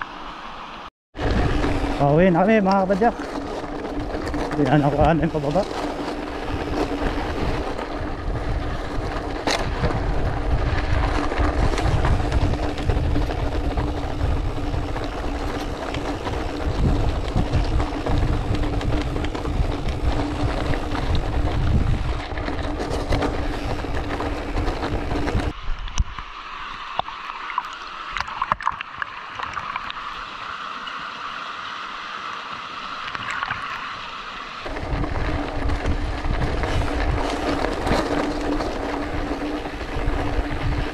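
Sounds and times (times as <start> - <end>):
tyres crunching over stones: 1.2 - 25.6, 34.6 - 40.9
wind buffeting microphone: 1.2 - 26.2, 34.6 - 40.9.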